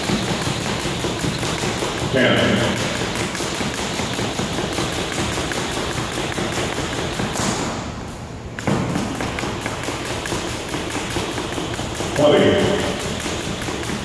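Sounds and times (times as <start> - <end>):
feet tapping on floor: 0.0 - 7.6
jump rope ticking on wooden floor: 0.0 - 14.0.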